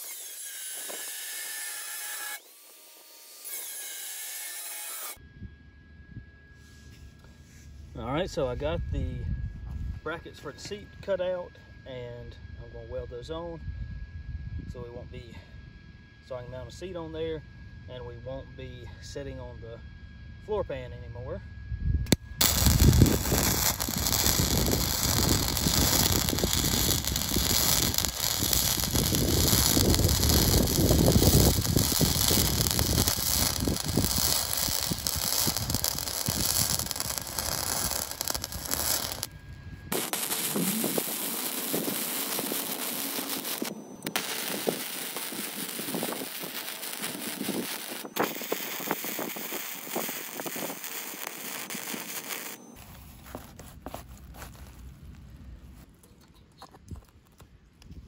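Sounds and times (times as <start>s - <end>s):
electric arc welding: 0.0s - 5.2s, 22.1s - 39.3s, 39.9s - 52.8s.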